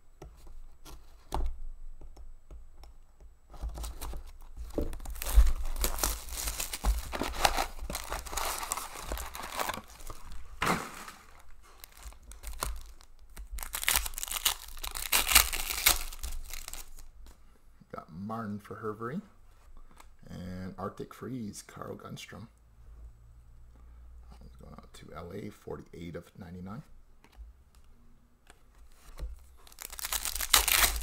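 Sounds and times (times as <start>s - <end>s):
wrapping crinkling and tearing: 3.6s - 17.1s, 29.4s - 31.0s
foil packs rustling: 3.8s - 17.1s, 29.6s - 31.0s
foil pack tearing: 5.0s - 17.1s, 29.6s - 31.0s.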